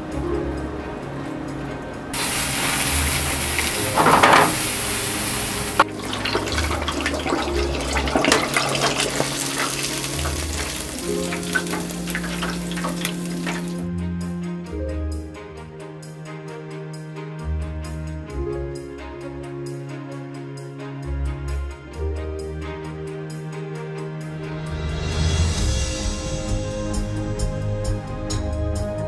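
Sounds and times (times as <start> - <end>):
background music with low notes: 0.0 - 29.0
food deep-frying in hot oil: 2.2 - 13.8.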